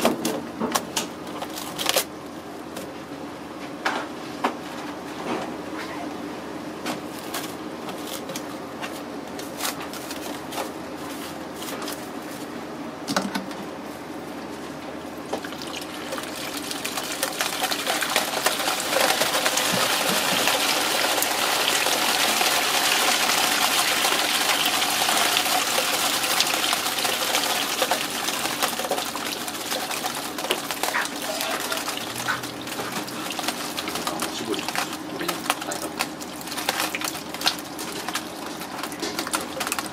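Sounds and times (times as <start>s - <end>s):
fish splashing in metal tray: 15.3s - 39.9s
plastic wrap crinkling: 15.6s - 39.9s.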